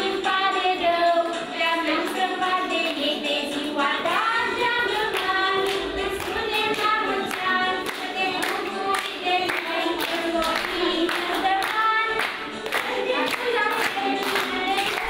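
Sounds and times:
group of voices singing: 0.0 - 15.0
audience clapping along: 4.0 - 15.0.

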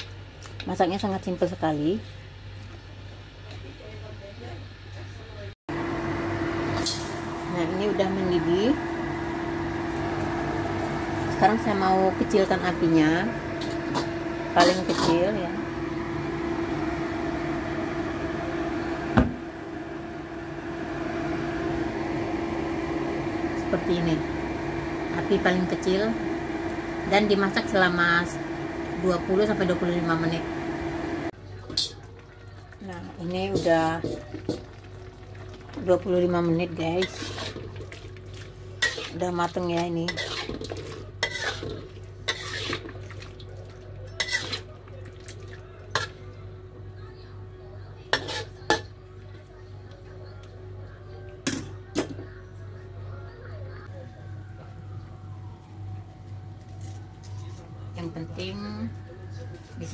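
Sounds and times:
kitchen hum: 0.0 - 59.9
gas stove burner rushing: 5.7 - 31.9
spatula scraping metal wok: 36.9 - 37.8, 38.8 - 39.3, 40.0 - 43.0, 44.1 - 44.7, 48.1 - 48.8.

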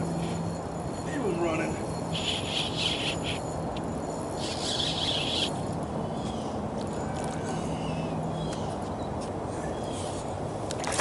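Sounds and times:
steady low hum: 0.0 - 10.9
constant low hiss: 0.0 - 11.0
bird chirps: 1.9 - 3.6, 4.3 - 6.6
high insect buzz: 2.1 - 3.4.

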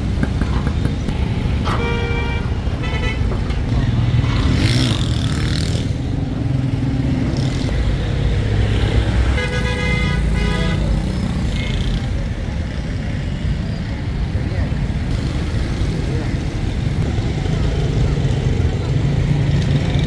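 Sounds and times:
road traffic rumbling: 0.0 - 20.0
vehicle horn: 1.6 - 3.2, 9.4 - 10.9.

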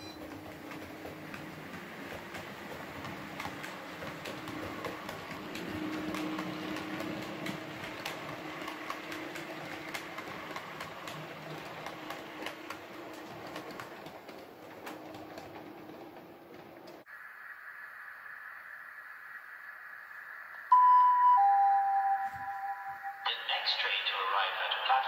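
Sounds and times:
model train motor hum: 0.0 - 16.1
wheels clicking over rail joints: 0.0 - 17.1.

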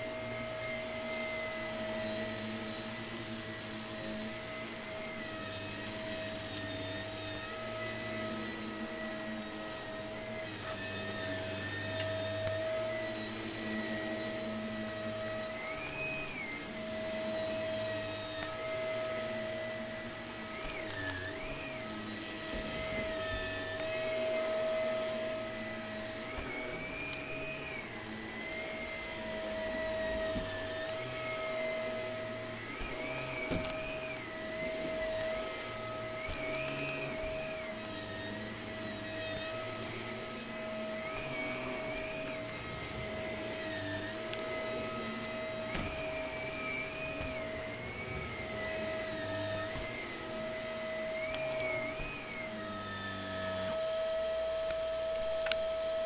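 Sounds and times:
vacuum cleaner motor whine: 0.0 - 56.0.

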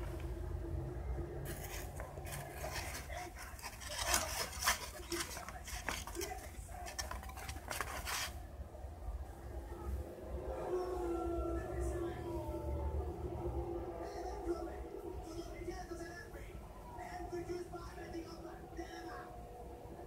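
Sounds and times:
cat scratching cardboard box: 1.4 - 8.4.

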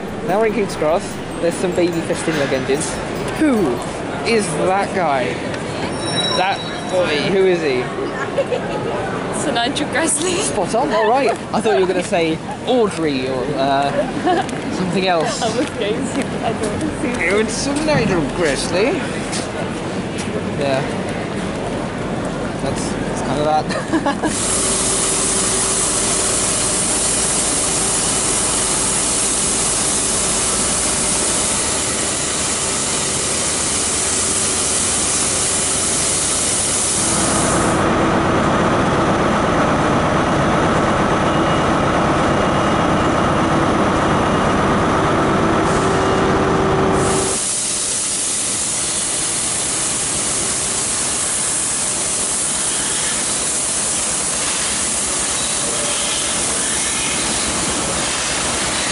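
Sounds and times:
steam locomotive hissing steam: 0.0 - 4.8, 24.1 - 37.9, 47.0 - 58.9
steady hum: 0.0 - 5.6.

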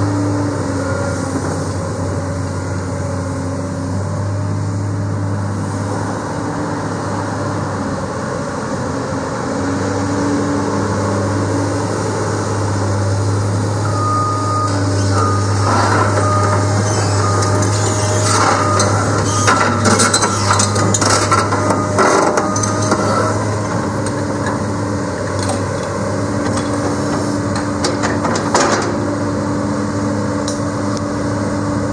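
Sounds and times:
excavator diesel engine running: 0.0 - 31.9
metal clanks and knocks: 17.4 - 23.1, 26.4 - 29.0.

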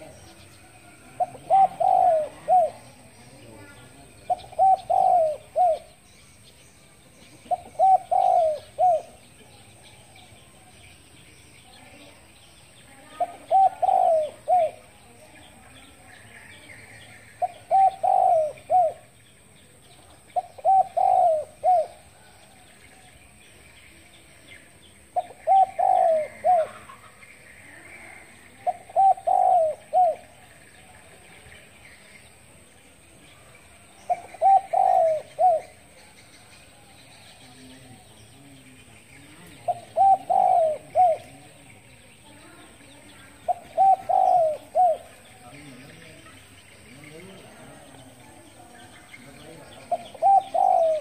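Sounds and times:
dove cooing: 0.0 - 6.1, 7.2 - 10.6, 13.1 - 15.2, 17.2 - 19.2, 20.1 - 22.7, 25.0 - 30.6, 33.8 - 36.1, 39.4 - 41.9, 43.3 - 48.2, 48.9 - 51.0
small birds chirping: 0.0 - 51.0.

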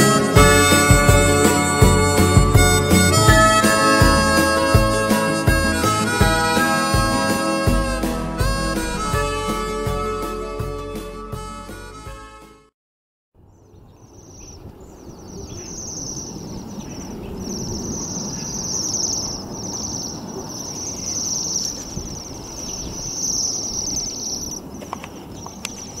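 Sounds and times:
birds giving ringing trills: 13.5 - 26.0.

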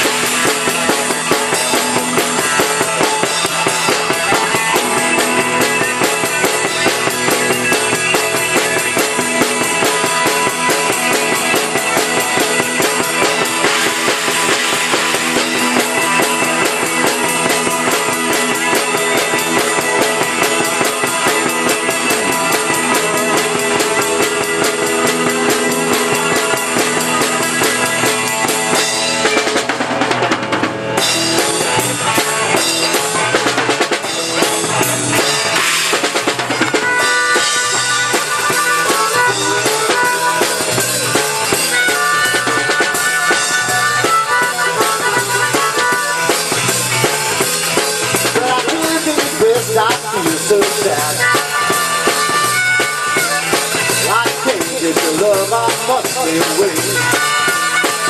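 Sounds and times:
harmonica solo: 0.0 - 29.6, 34.0 - 49.0, 50.8 - 58.0
rock band playing: 0.0 - 58.0.

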